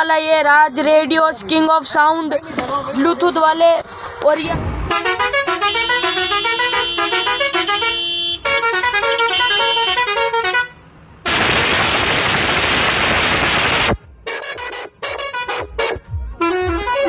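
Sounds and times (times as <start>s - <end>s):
musical truck horn tune: 4.8s - 12.3s, 13.5s - 17.0s
loud steady hiss: 11.3s - 14.0s.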